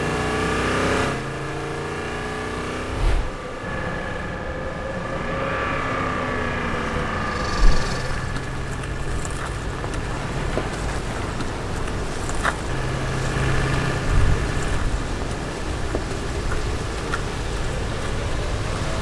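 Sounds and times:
car engine running: 1.1 - 19.0
low hum: 2.5 - 11.7.

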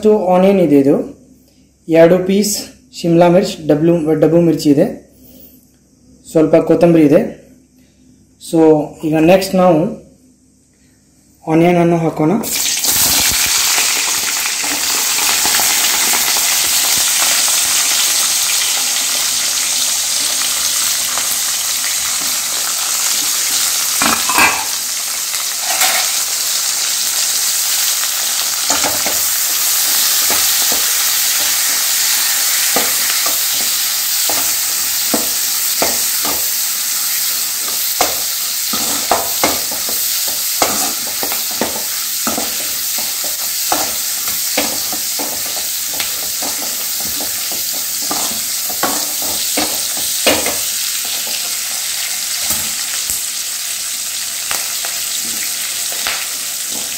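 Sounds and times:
onions sizzling in hot oil: 12.4 - 56.9
metal clank: 24.0 - 24.7.

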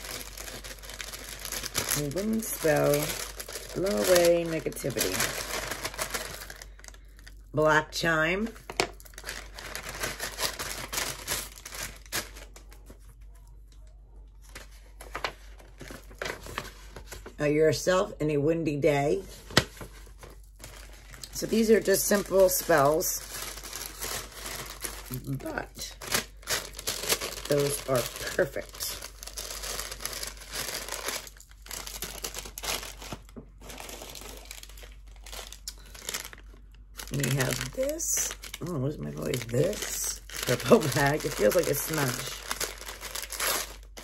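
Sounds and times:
paper packaging rustling: 0.0 - 7.4, 8.4 - 13.4, 14.4 - 17.4, 19.2 - 44.0
paper rustling: 14.4 - 17.4, 19.3 - 25.4, 39.3 - 44.0.

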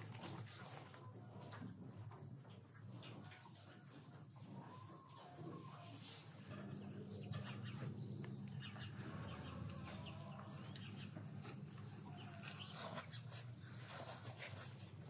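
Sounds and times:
small birds chirping: 5.0 - 14.0.

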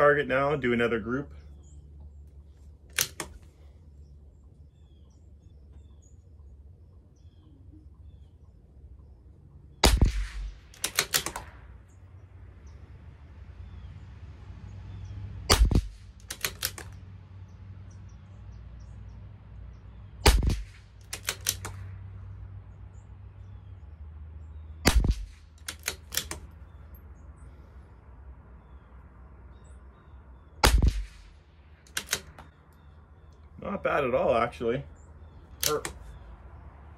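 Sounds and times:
rifle bolt clicks: 2.8 - 3.6, 9.9 - 11.6, 15.5 - 17.0, 20.3 - 21.8, 24.9 - 26.8, 30.6 - 32.9, 35.5 - 36.2
rifle shots: 9.8 - 11.8, 15.5 - 17.0, 20.2 - 21.9, 24.8 - 26.5, 30.6 - 32.5, 35.6 - 36.0.

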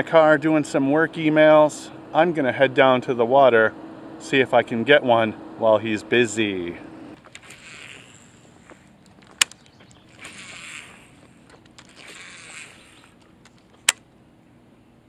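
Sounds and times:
line whirring off spool: 0.0 - 14.0
fishing reel clicking: 7.2 - 8.8, 9.5 - 14.0.

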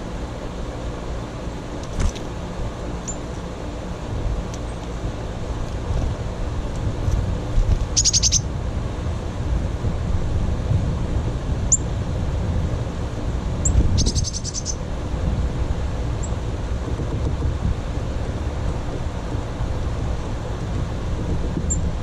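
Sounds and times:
songbirds trilling and chirping: 0.0 - 9.0, 11.6 - 12.0, 13.2 - 16.4
low rumble of wind or traffic: 0.0 - 22.0.

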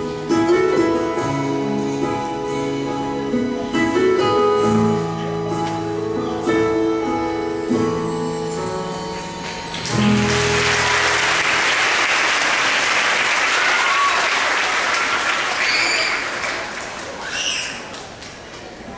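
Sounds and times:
audience applause: 9.7 - 18.8.

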